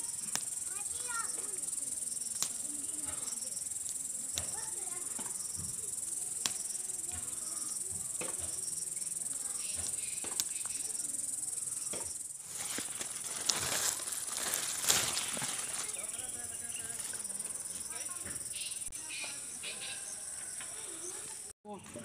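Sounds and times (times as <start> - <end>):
insects chirring: 0.0 - 21.5
chillies snapping off plants: 2.4 - 2.6, 12.7 - 16.0
leaf rustling: 12.4 - 18.0.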